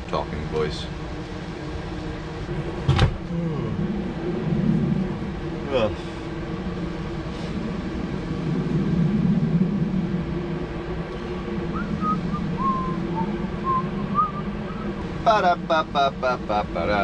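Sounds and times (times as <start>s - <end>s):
steady low hum: 0.0s - 17.0s
person whistling: 12.0s - 14.4s.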